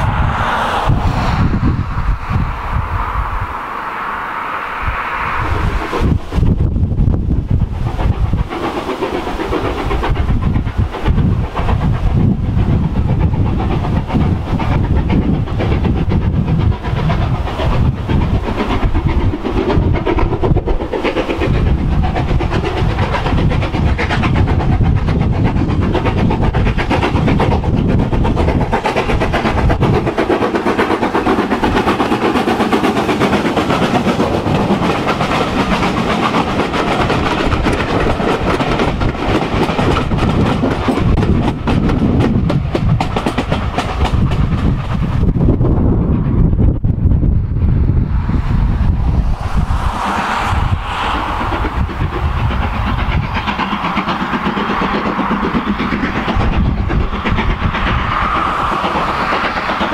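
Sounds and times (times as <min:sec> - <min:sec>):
steam locomotive passing: 0:00.0 - 0:59.9
wheels clattering over rail joints: 0:06.0 - 0:45.6.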